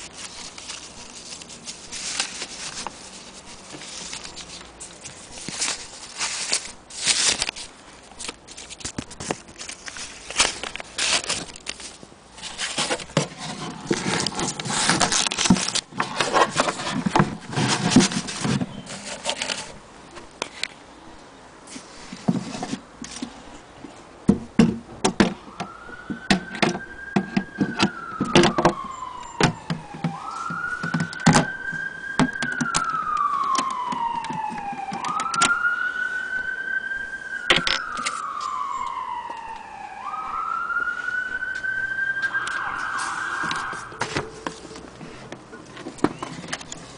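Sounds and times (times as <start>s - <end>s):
paper rustling: 0.0s - 19.8s, 37.4s - 39.1s, 42.2s - 46.9s
siren wailing: 25.4s - 44.7s.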